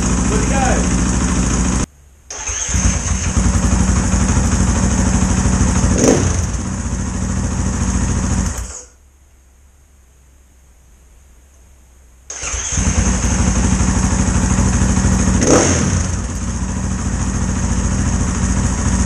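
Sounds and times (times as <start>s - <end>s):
dirt bike engine idling: 0.0s - 1.9s, 2.7s - 8.9s, 12.4s - 19.0s.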